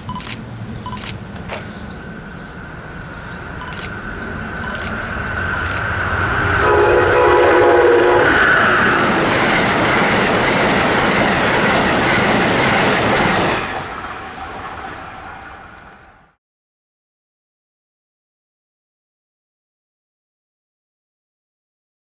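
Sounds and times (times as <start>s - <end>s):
train horn chord: 6.4s - 8.8s
train wheels clattering: 8.3s - 16.1s.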